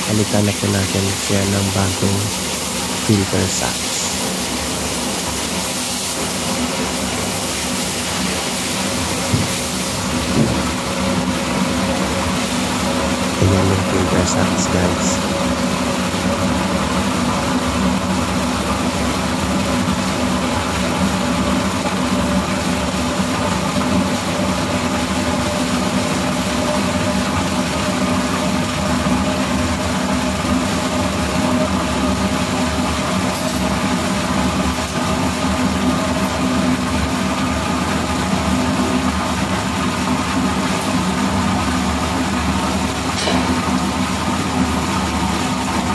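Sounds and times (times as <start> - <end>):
machinery humming: 0.0 - 5.5, 6.2 - 15.6.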